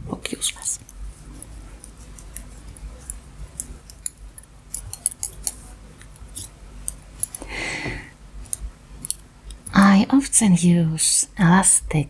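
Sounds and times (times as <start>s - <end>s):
breathy sound: 7.4s - 8.2s.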